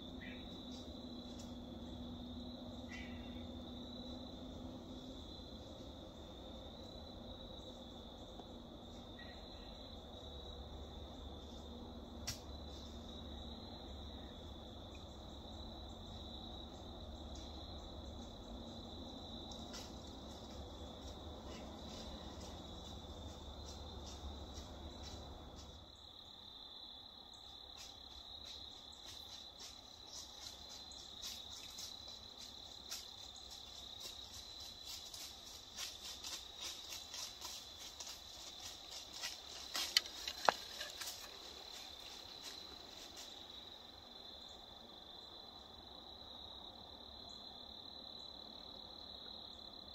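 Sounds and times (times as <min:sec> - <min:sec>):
crickets trilling: 0:00.0 - 0:49.9
faint crackles and ticks: 0:27.8 - 0:43.3.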